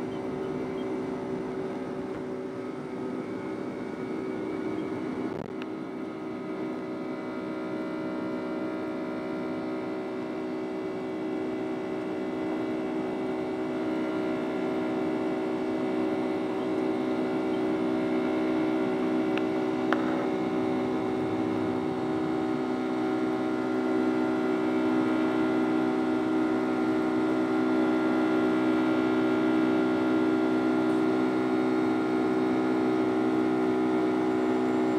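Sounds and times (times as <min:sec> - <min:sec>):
jet engines droning in cabin: 0:00.0 - 0:34.9.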